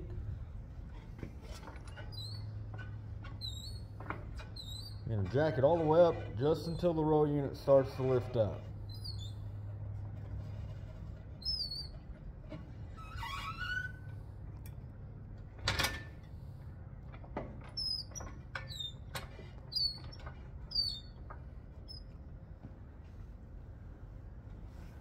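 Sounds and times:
steady low hum: 0.0s - 13.0s
floor jack squeaking and clicking: 0.9s - 6.9s, 7.6s - 14.3s, 17.1s - 22.2s.

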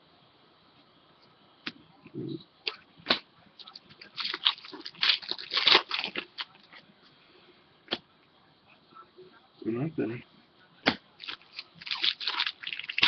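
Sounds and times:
foil wrapper crinkling and tearing: 3.7s - 6.6s, 11.2s - 13.0s.

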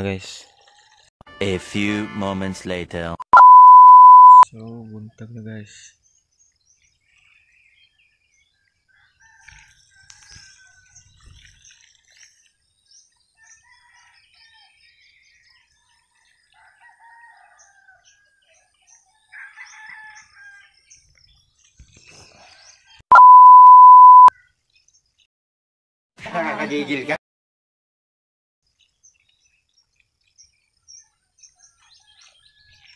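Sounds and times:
electronic beep: 3.3s - 4.5s, 23.1s - 24.3s
roosters crowing: 19.3s - 20.7s.

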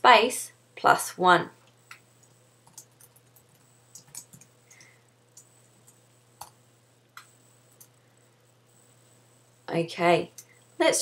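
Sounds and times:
faint steady hum: 0.0s - 11.0s
keyboard keys typing: 1.9s - 6.6s.

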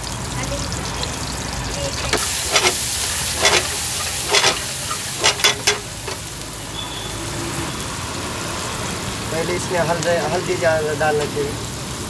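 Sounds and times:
vegetables sizzling in oil: 0.0s - 12.0s
metal spatula scraping pan: 1.9s - 6.3s.

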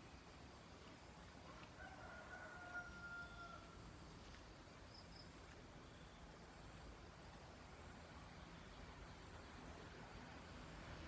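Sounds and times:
rooster crowing: 1.8s - 3.8s.

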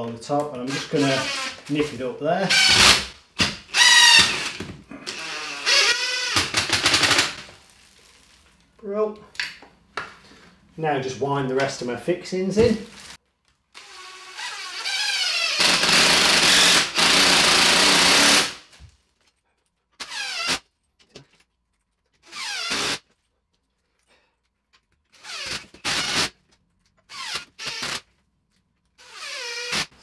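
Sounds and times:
cordless drill driving screws: 3.7s - 7.4s, 13.8s - 18.6s, 27.1s - 28.0s, 29.0s - 30.0s.

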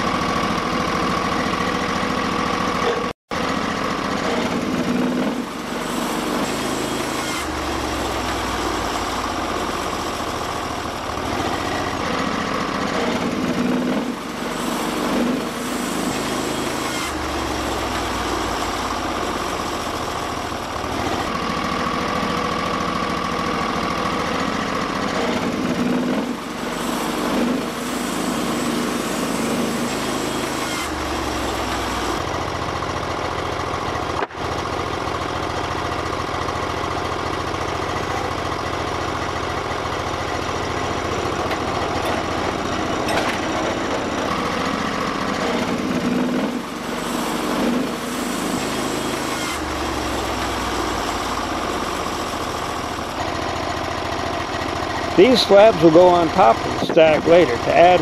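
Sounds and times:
sawmill engine running: 0.0s - 58.0s
band blade sawing wood: 4.2s - 22.4s, 24.2s - 32.3s, 40.3s - 53.2s, 55.1s - 58.0s.

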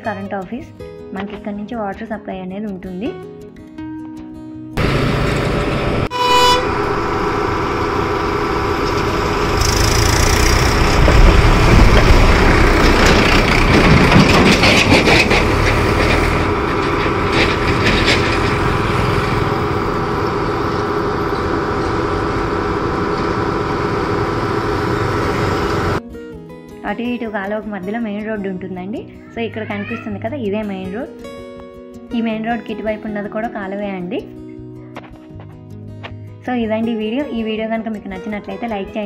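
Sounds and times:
steady machine hum: 4.8s - 13.9s, 16.4s - 26.0s.

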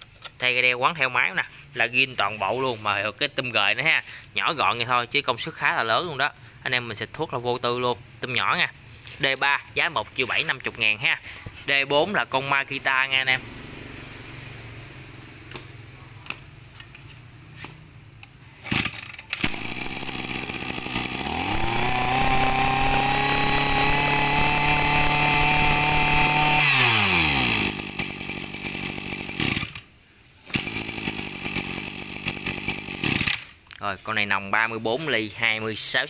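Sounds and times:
brushcutter engine idling and revving: 7.0s - 17.7s, 18.5s - 33.8s.

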